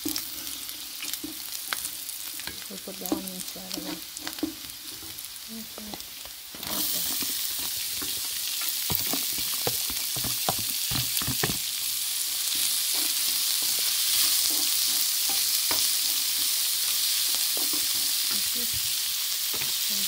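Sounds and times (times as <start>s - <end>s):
onions sizzling in hot oil: 0.0s - 20.0s
spatula scraping a pan: 0.1s - 5.3s, 12.4s - 18.8s.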